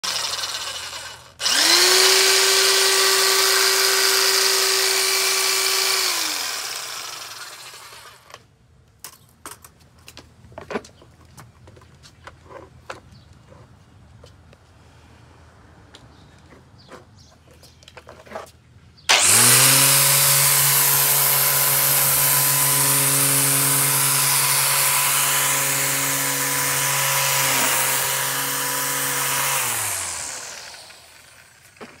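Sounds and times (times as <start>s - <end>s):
string trimmer motor whine: 0.0s - 8.4s, 19.1s - 32.0s.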